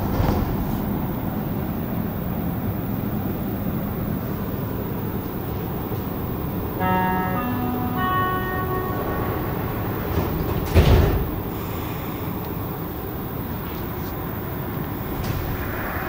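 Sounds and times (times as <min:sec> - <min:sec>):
metro train car noise: 0:00.0 - 0:16.0
rising door-closing chime: 0:06.8 - 0:11.6.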